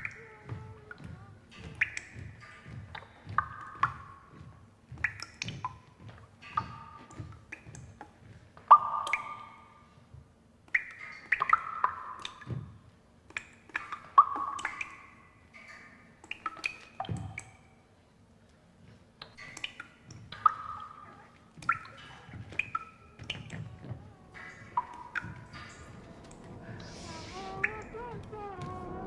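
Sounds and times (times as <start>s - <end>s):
soft low thuds: 23.1s - 29.0s.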